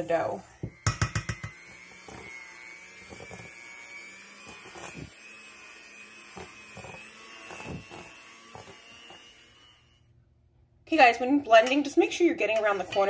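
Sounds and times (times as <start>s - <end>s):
electric hand mixer running: 0.0s - 10.0s
beaters knocking on bowl: 0.6s - 1.6s.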